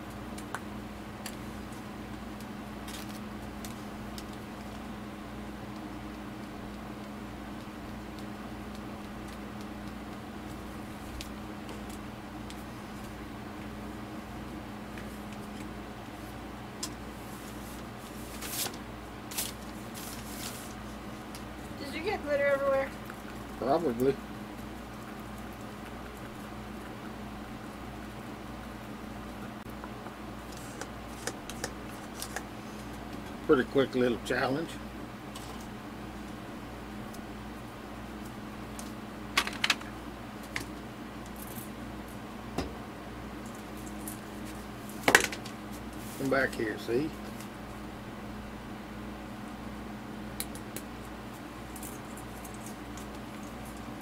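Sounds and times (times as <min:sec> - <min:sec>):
steady low hum: 0:00.0 - 0:54.0
rustling handling noises: 0:01.2 - 0:04.8, 0:14.9 - 0:22.0, 0:30.4 - 0:33.4, 0:43.4 - 0:47.9.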